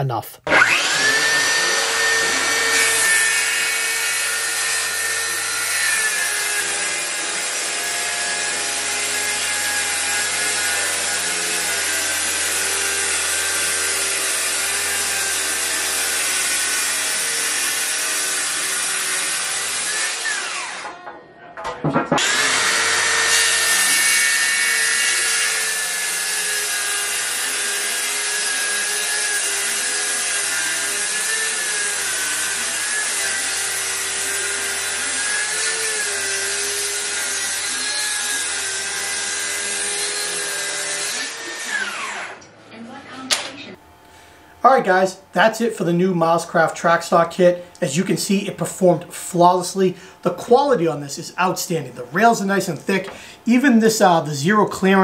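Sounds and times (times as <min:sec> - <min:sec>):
circular saw cutting wood: 0:00.5 - 0:21.0, 0:22.0 - 0:42.5
saw motor whine: 0:00.5 - 0:21.0, 0:22.2 - 0:42.6.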